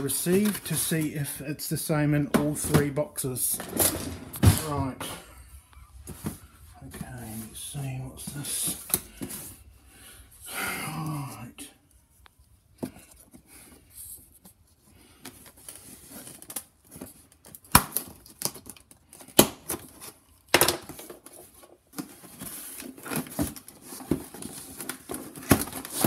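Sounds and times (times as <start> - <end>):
cardboard rustling: 0.0 - 5.3, 5.9 - 9.7, 20.9 - 26.0.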